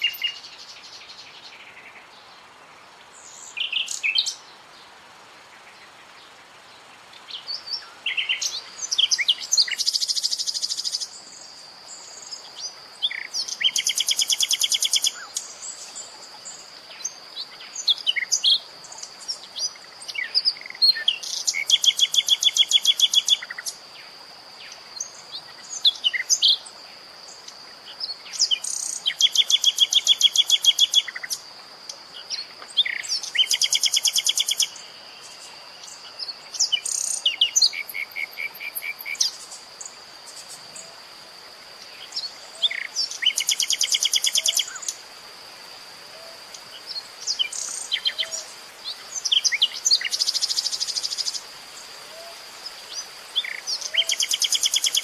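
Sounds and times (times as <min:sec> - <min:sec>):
nightingale singing: 0:00.0 - 0:02.5, 0:03.1 - 0:05.0, 0:07.1 - 0:41.0, 0:41.8 - 0:45.0, 0:46.1 - 0:55.0.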